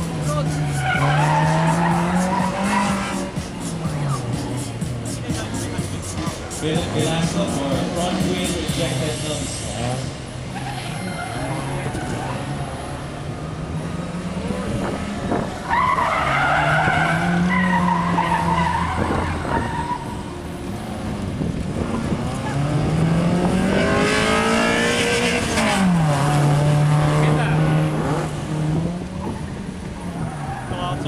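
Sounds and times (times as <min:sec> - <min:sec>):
tyres squealing: 0:00.0 - 0:09.0, 0:10.4 - 0:12.9, 0:15.6 - 0:20.6
car engine accelerating: 0:00.0 - 0:31.0.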